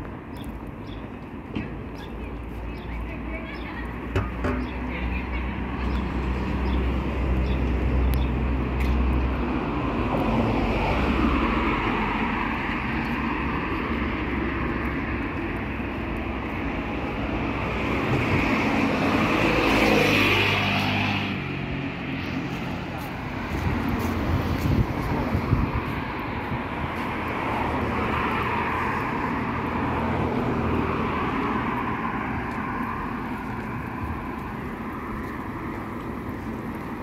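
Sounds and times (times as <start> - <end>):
cars driving along street: 0.0 - 37.0
car passing close: 17.2 - 37.0.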